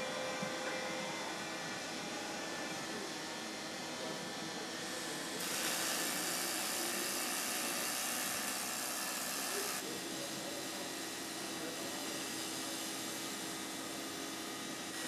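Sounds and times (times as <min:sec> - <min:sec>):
factory machinery hum: 0:00.0 - 0:15.0
welding arc hissing: 0:05.4 - 0:15.0.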